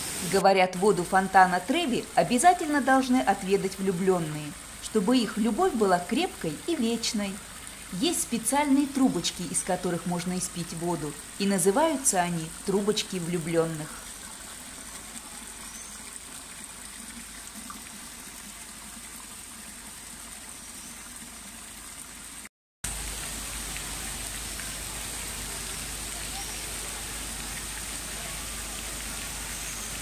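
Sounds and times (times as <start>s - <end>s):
fountain water rushing: 0.0s - 30.0s
water trickling into stone basin: 0.1s - 30.0s.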